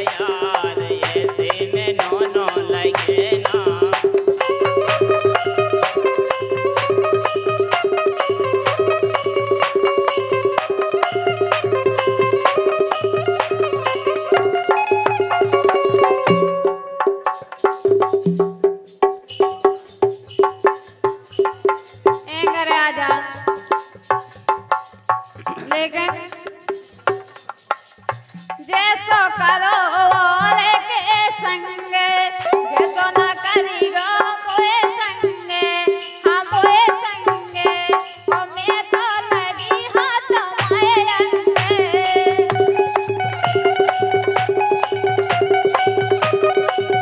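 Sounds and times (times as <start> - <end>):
fast wood-block-like percussion clicks: 0.0 - 6.1, 20.1 - 31.3, 32.4 - 47.0
person singing: 0.0 - 16.8, 22.3 - 23.8, 25.4 - 26.8, 28.6 - 47.0
woman singing folk song: 22.3 - 23.7, 25.6 - 26.7, 28.6 - 43.1.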